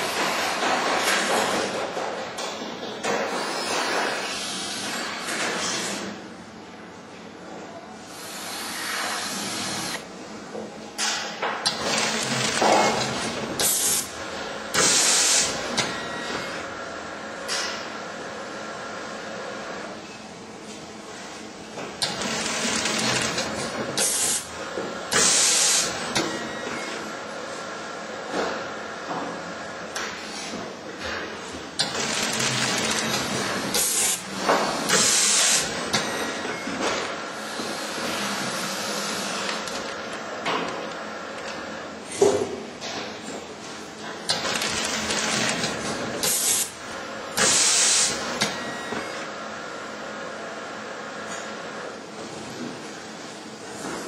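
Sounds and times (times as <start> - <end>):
packaging machine running: 9.1 - 10.2, 11.6 - 17.8, 21.9 - 27.4, 31.4 - 41.9, 44.1 - 48.9.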